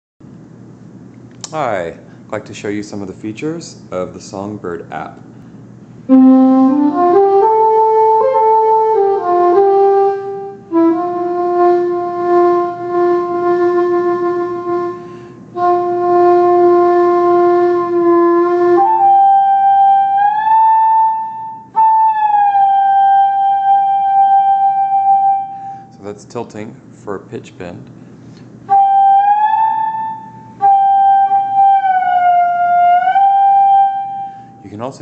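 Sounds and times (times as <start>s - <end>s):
flute-like notes melody: 6.1s - 26.0s, 28.6s - 34.6s.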